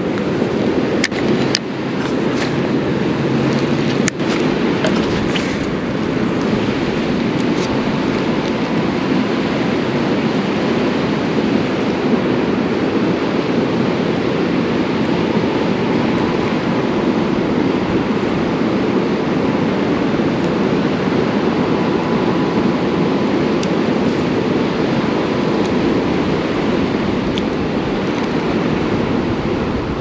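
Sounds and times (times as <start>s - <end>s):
creek water rushing: 0.0s - 30.0s.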